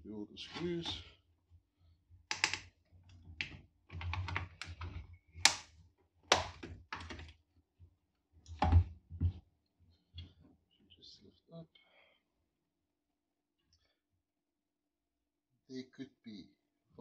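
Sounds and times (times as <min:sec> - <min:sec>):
hard plastic clicking and knocking: 0:02.3 - 0:02.7, 0:06.3 - 0:07.4.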